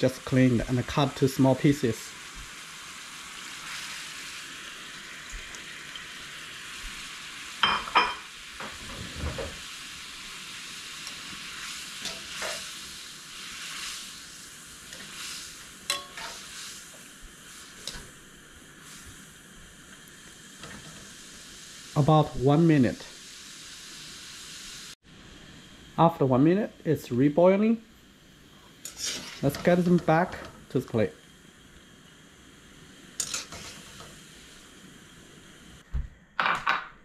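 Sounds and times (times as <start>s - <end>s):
utensils knocking against a pan: 15.9s - 16.4s.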